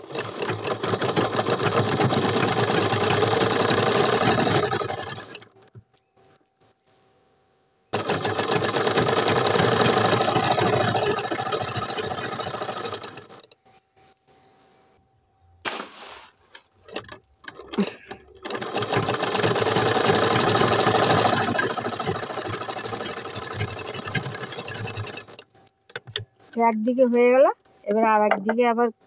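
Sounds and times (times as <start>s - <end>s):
sewing machine stitching: 0.0s - 5.8s, 7.9s - 13.6s, 16.6s - 26.2s
irregular knocks and handling: 27.9s - 28.8s.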